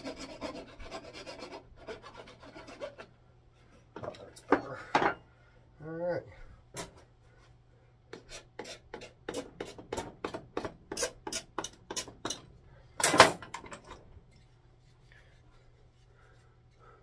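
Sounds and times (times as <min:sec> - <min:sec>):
rasp scraping wood: 0:00.0 - 0:03.1, 0:08.1 - 0:10.0.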